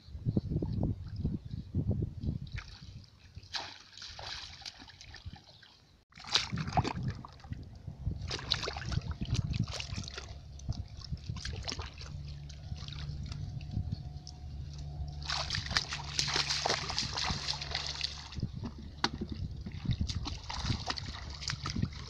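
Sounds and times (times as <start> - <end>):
shallow water splashing: 2.5 - 22.0.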